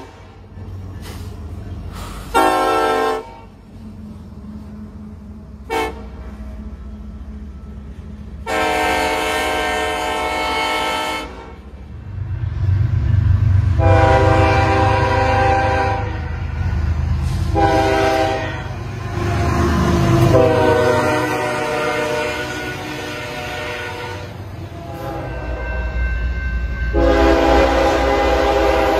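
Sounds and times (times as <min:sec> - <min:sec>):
locomotive engines rumbling: 0:00.0 - 0:28.9
locomotive air horn blasts: 0:02.3 - 0:03.6, 0:05.6 - 0:06.2, 0:08.4 - 0:11.6, 0:13.7 - 0:16.6, 0:17.3 - 0:26.0, 0:26.9 - 0:28.9.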